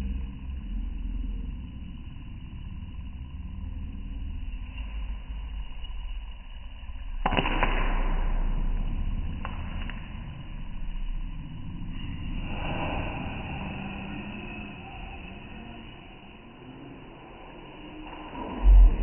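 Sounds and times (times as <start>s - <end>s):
gas burner low rumble: 8.2s - 19.0s.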